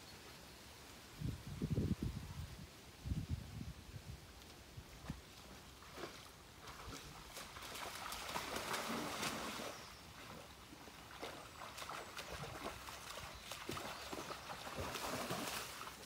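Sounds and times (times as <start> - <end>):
water splashing and sloshing: 5.0 - 16.0.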